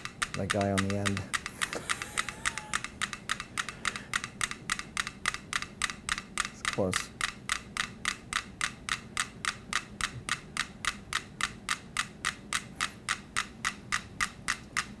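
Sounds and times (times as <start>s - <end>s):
metronomes ticking: 0.0s - 15.0s.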